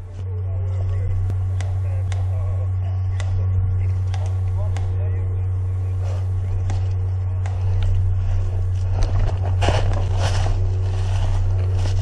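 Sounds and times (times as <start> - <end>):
steady low hum: 0.0 - 12.0
footsteps through dry leaves: 7.6 - 12.0.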